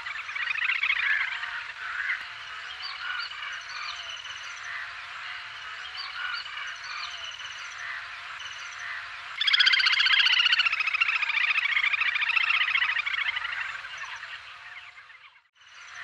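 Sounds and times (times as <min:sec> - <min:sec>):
grebe calling: 0:00.0 - 0:04.0, 0:08.8 - 0:15.0.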